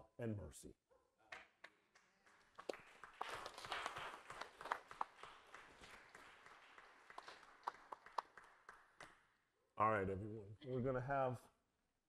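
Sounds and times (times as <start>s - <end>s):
people clapping: 1.2s - 9.4s.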